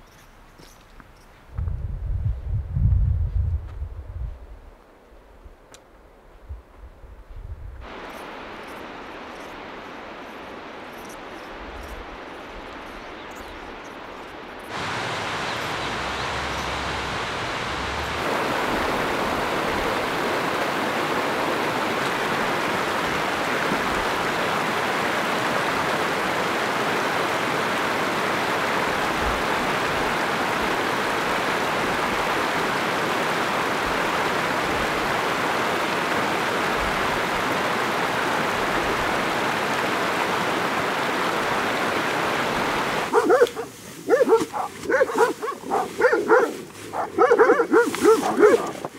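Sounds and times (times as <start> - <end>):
stream rushing over rocks: 7.8 - 48.9.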